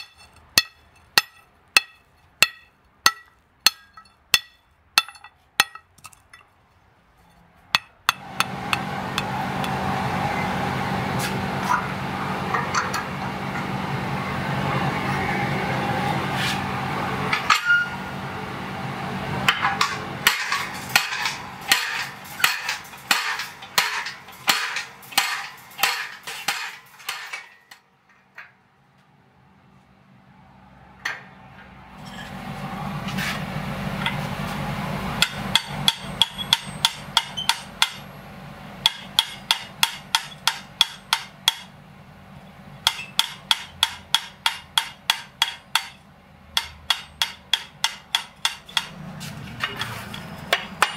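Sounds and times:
hammer striking hot steel: 0:00.0 - 0:06.4, 0:07.7 - 0:09.9, 0:19.5 - 0:27.8, 0:35.2 - 0:38.1, 0:38.8 - 0:41.7, 0:42.8 - 0:46.0, 0:46.6 - 0:49.0, 0:49.6 - 0:50.9.

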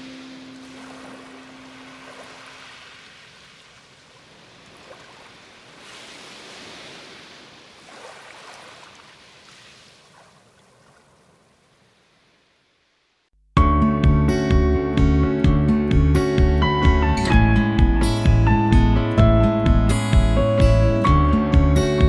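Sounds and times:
sea waves washing ashore: 0:00.0 - 0:12.8.

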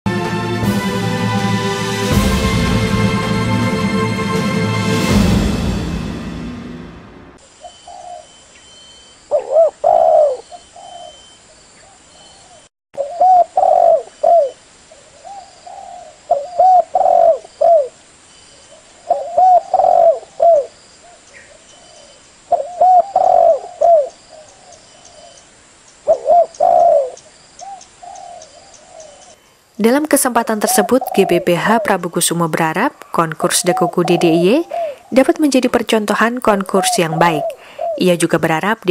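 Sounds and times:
doves cooing: 0:07.6 - 0:08.4, 0:09.3 - 0:18.0, 0:18.8 - 0:25.4, 0:26.1 - 0:29.4, 0:30.3 - 0:32.4, 0:33.4 - 0:35.4, 0:36.4 - 0:38.5.

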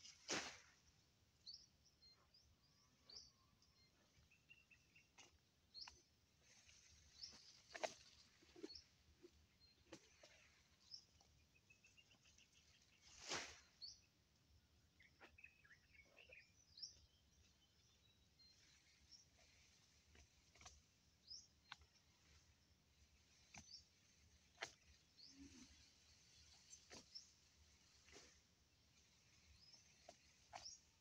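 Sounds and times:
small birds chirping: 0:01.4 - 0:31.0
grass swishing: 0:13.0 - 0:13.7.

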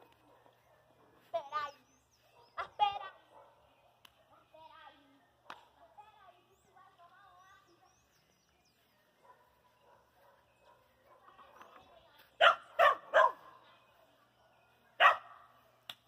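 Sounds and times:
dog barking: 0:00.0 - 0:01.2, 0:02.3 - 0:04.0, 0:09.2 - 0:15.6.

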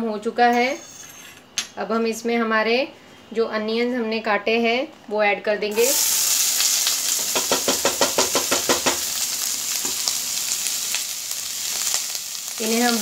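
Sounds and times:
onions sizzling in oil: 0:05.7 - 0:13.0.

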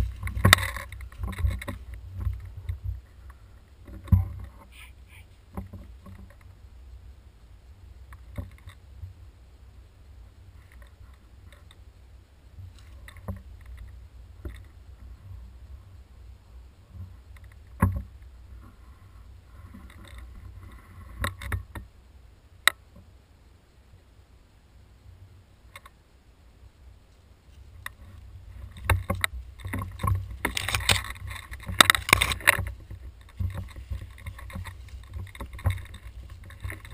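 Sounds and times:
knocks and rustles: 0:00.0 - 0:06.5, 0:27.5 - 0:36.9
wind rumble: 0:00.0 - 0:22.6, 0:26.4 - 0:36.9
camera handling noise: 0:30.5 - 0:31.1.

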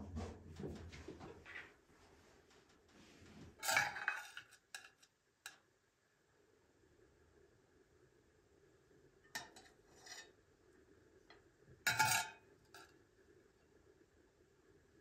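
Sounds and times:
metal spoon clinking on china plates: 0:11.9 - 0:12.9.

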